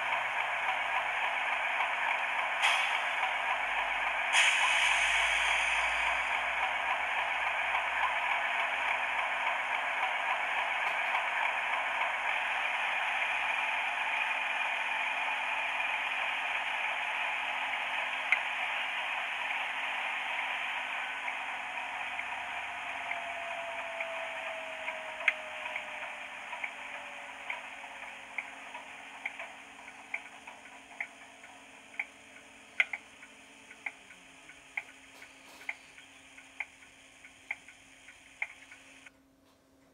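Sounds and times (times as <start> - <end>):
model locomotive diesel engine sound: 0.0 - 39.9
whine sliding down in pitch: 19.8 - 31.3
sharp ticks: 24.8 - 39.1.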